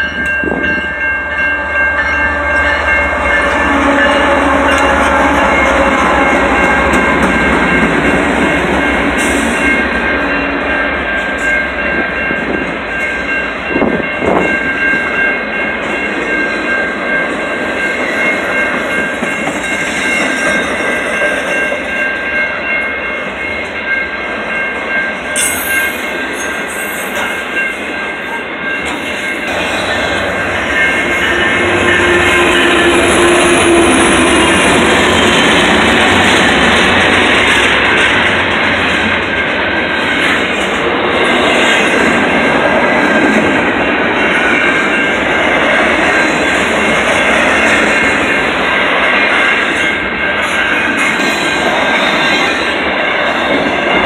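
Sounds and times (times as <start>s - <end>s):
high ringing tones: 0.0s - 36.8s
train wheels rumbling on rails: 0.0s - 54.0s.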